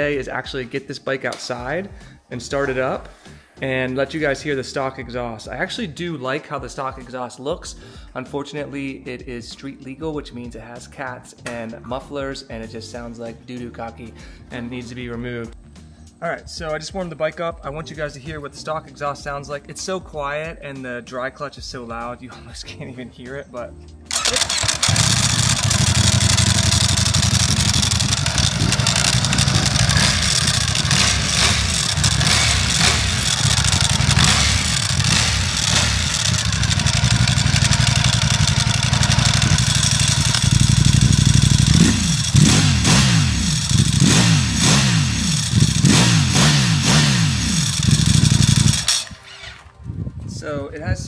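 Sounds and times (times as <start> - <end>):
engine revving: 24.1 - 49.6
motorcycle engine idling: 24.1 - 49.6
dry clutch clattering: 24.1 - 49.8.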